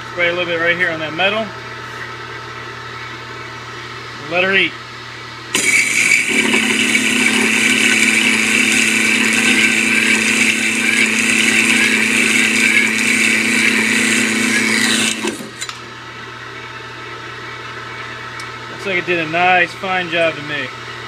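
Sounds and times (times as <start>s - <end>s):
circular saw cutting metal: 5.6s - 15.7s.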